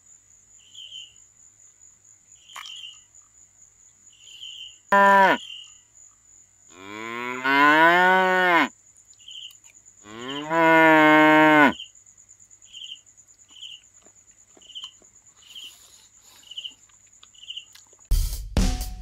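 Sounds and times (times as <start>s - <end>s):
high insect whine: 0.0s - 17.7s
cricket chirping: 0.0s - 18.1s
long moo-like calls: 4.9s - 5.4s, 6.7s - 8.7s, 10.0s - 11.8s.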